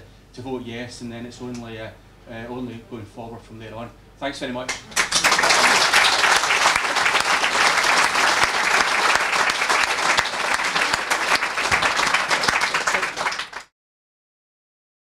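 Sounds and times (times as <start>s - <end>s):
audience applauding: 4.9s - 13.7s.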